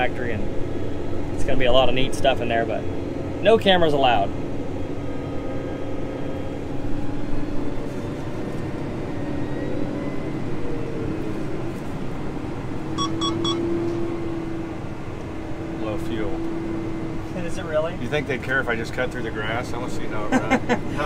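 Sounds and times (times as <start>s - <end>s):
tractor engine humming with whine: 0.0s - 18.1s
quick electronic beeps: 13.0s - 13.7s.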